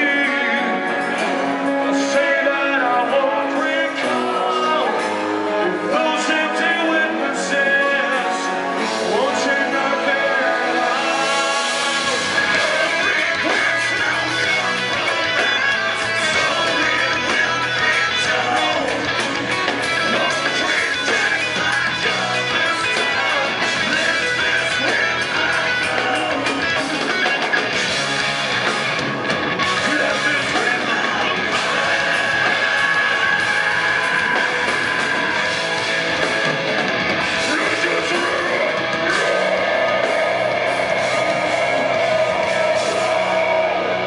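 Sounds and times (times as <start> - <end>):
heavy metal band playing live: 0.0 - 44.0.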